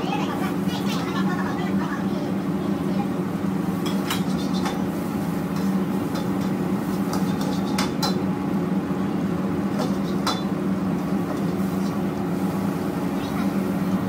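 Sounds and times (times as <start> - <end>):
burners and extraction hum: 0.0 - 14.0
metal ladle scraping a wok: 3.8 - 8.2.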